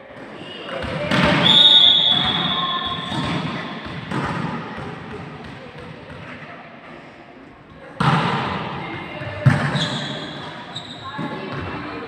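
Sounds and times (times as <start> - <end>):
players' voices: 0.0 - 12.0
volleyball thud: 0.8 - 6.0
referee's whistle blast: 1.4 - 3.2.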